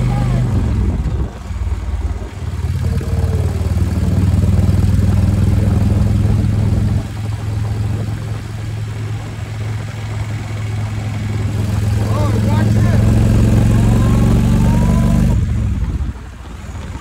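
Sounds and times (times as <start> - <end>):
motorcycle engine drone: 0.0 - 17.0.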